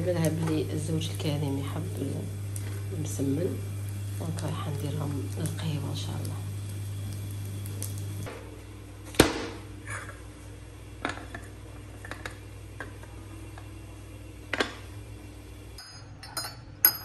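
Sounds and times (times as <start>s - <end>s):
porcelain saucers clinking on tray: 15.8s - 17.0s.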